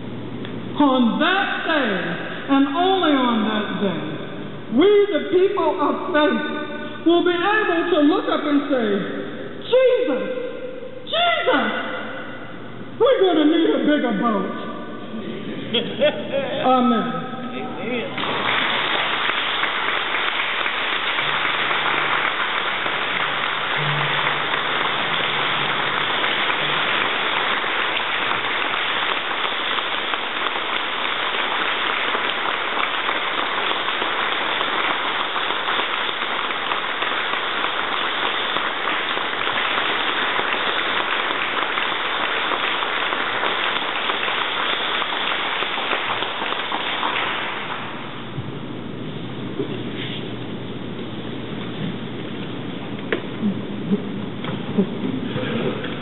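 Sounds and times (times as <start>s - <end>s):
congregation applauding: 18.2s - 48.2s.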